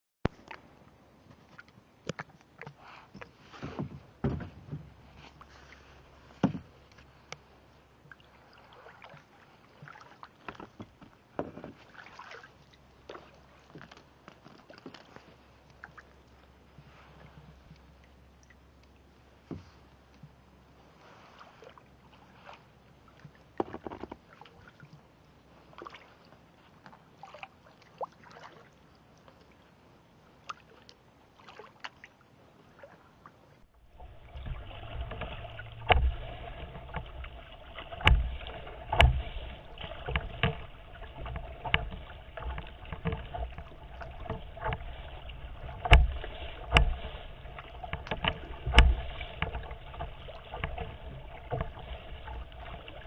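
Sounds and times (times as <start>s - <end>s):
water slapping against kayak hull: 1.3s - 7.5s, 33.6s - 53.0s.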